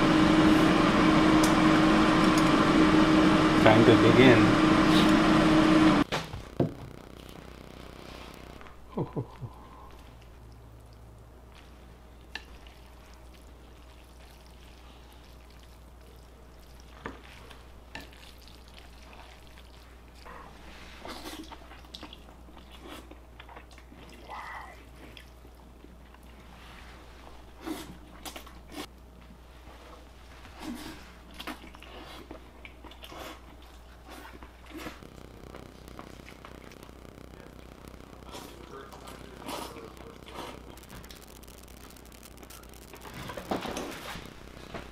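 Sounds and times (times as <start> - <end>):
low steady hum: 0.0 - 44.9
chewing and slurping noodles: 11.6 - 24.2, 30.5 - 35.0.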